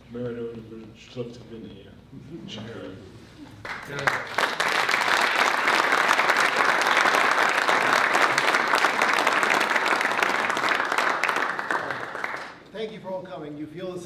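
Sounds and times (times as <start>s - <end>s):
audience applauding: 3.6s - 12.7s.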